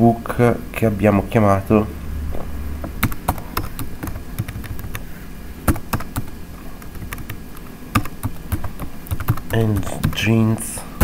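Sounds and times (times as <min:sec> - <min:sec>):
low background rumble: 0:00.0 - 0:11.0
keyboard key presses: 0:03.0 - 0:05.0, 0:05.7 - 0:10.2.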